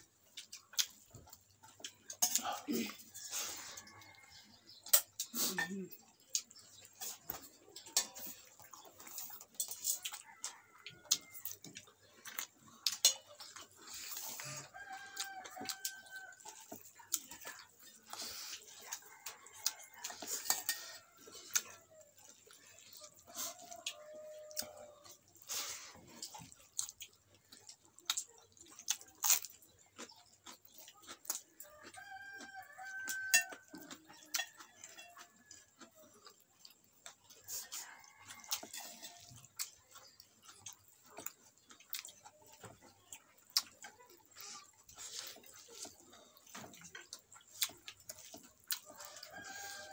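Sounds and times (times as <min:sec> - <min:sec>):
chewing clicks and smacks: 0:00.0 - 0:49.9
rooster crowing: 0:14.4 - 0:16.4, 0:23.4 - 0:25.2, 0:31.8 - 0:33.8, 0:37.5 - 0:39.3, 0:48.8 - 0:49.9.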